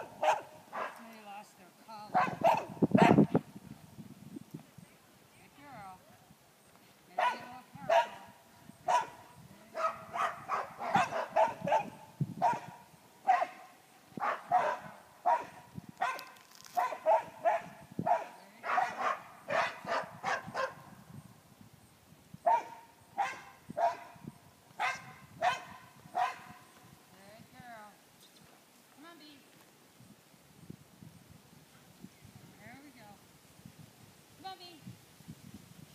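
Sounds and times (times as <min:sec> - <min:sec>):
dog barking: 0:00.0 - 0:01.0, 0:02.2 - 0:03.3, 0:07.2 - 0:08.3, 0:08.9 - 0:09.2, 0:09.8 - 0:20.8, 0:22.5 - 0:24.2, 0:24.8 - 0:26.6.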